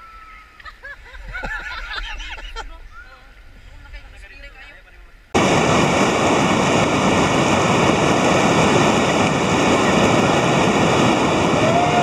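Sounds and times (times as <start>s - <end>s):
whitewater rapids rushing: 5.4s - 12.0s.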